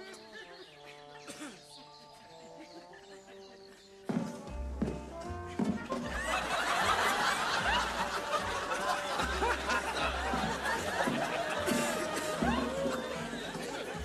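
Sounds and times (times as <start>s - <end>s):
crowd laughing: 0.0s - 4.4s, 5.4s - 14.0s
background music with bass line: 4.1s - 14.0s.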